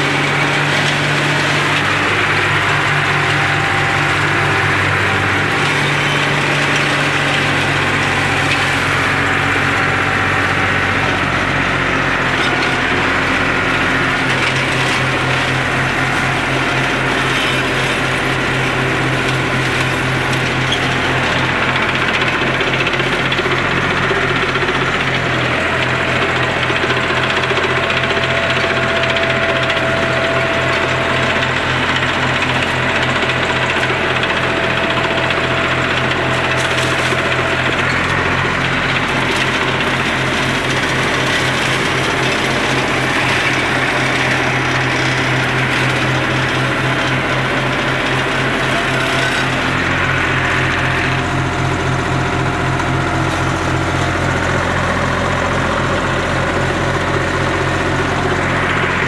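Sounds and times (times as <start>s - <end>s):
tractor engine running under load: 0.0s - 59.0s.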